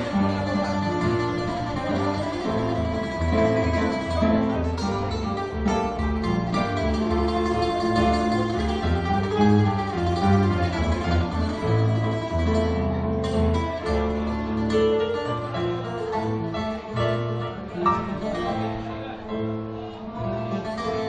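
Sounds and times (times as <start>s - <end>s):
plucked lute notes: 0.0s - 21.0s.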